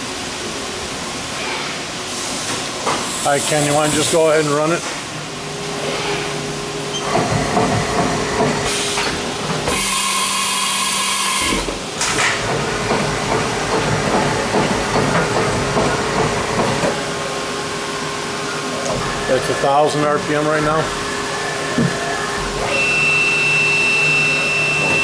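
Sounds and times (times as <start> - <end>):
machine steady tone: 9.7 - 11.7, 20.7 - 25.0.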